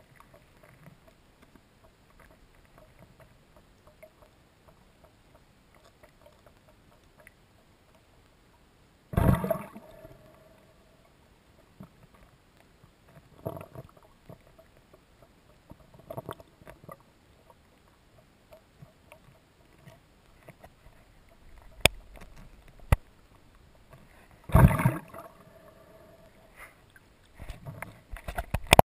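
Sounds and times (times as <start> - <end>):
water rushes: 9.1 - 11.0, 17.8 - 28.8.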